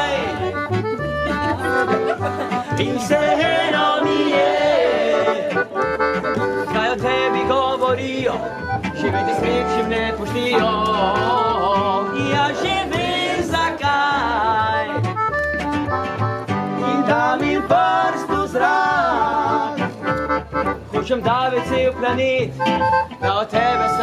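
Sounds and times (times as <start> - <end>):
person singing: 0.0 - 1.0, 2.5 - 5.9, 6.6 - 15.1, 16.8 - 19.9, 23.2 - 24.0
accordion folk-pop music: 0.0 - 24.0.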